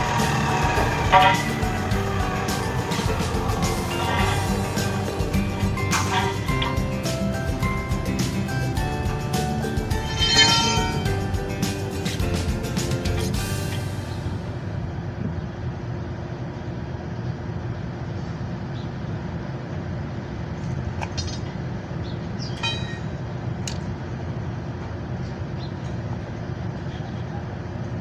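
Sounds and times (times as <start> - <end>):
traffic rumble: 0.0 - 28.0
short high tones: 9.9 - 11.2.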